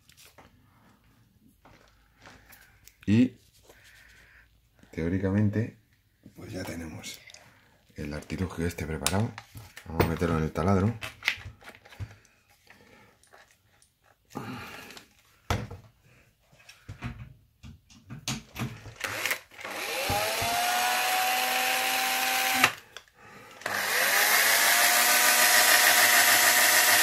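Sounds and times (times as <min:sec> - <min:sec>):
drill motor whining: 0:19.0 - 0:22.8, 0:23.6 - 0:27.0.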